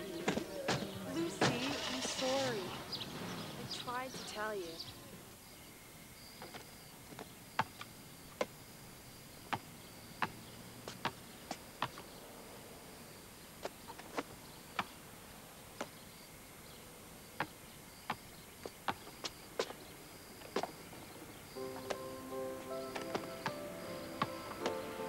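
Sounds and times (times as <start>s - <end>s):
basketball bouncing on asphalt: 6.4s - 8.6s, 9.4s - 12.1s, 13.6s - 15.0s, 17.4s - 19.8s, 24.2s - 24.8s.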